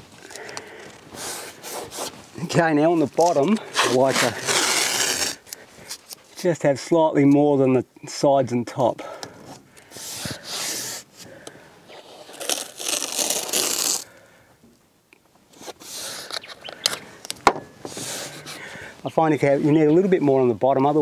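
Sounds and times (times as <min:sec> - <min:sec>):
masking tape scraping: 0:00.2 - 0:06.4, 0:09.8 - 0:11.2, 0:11.9 - 0:14.1, 0:15.5 - 0:18.8.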